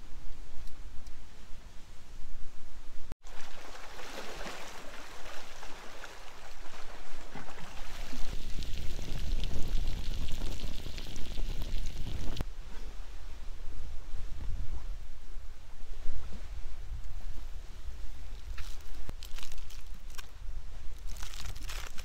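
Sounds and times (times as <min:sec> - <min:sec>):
water lapping against rocks: 0:03.2 - 0:12.4, 0:18.3 - 0:20.3, 0:21.0 - 0:22.0.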